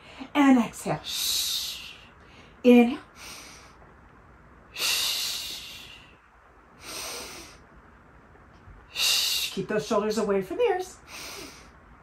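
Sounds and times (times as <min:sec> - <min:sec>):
woman breathing hard: 0:06.8 - 0:07.7, 0:11.0 - 0:11.8.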